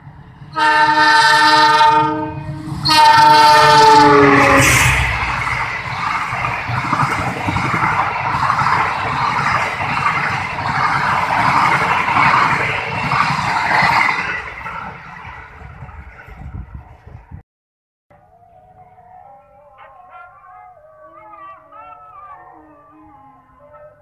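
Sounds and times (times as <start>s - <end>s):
train wheels rushing on rail: 0.0s - 17.4s.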